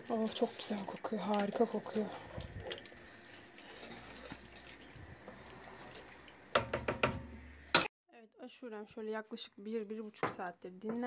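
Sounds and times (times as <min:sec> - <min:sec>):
liquid slopping in a pot: 0:00.0 - 0:06.9
spoon scraping a metal pot: 0:03.0 - 0:04.6.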